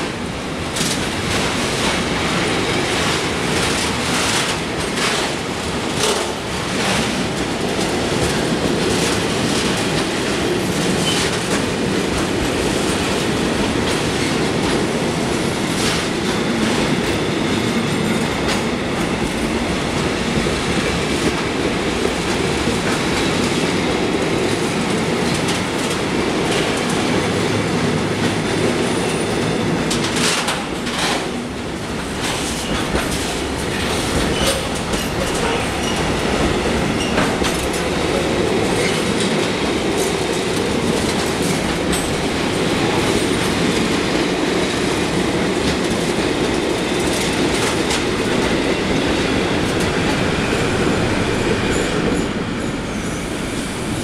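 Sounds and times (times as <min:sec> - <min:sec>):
freight train rumbling past: 0:00.0 - 0:54.0
wheels clacking over rail joints: 0:18.4 - 0:52.4.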